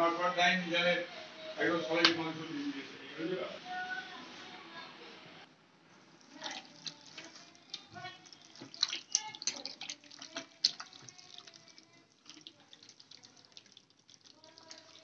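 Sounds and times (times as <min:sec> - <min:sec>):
hand squishing raw meat: 0:06.2 - 0:15.0.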